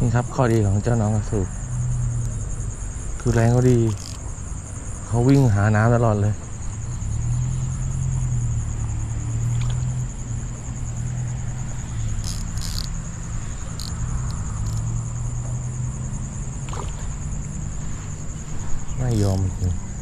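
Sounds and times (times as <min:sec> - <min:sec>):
insects chirring: 0:00.0 - 0:20.0
short high clicks: 0:03.3 - 0:04.2, 0:12.2 - 0:13.0, 0:13.7 - 0:14.8.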